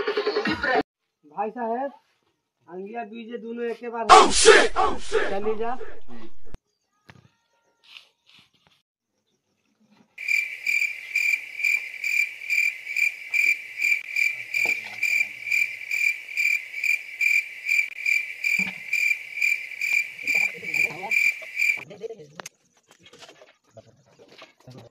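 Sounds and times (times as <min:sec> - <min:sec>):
cricket chirping: 0:10.2 - 0:21.9.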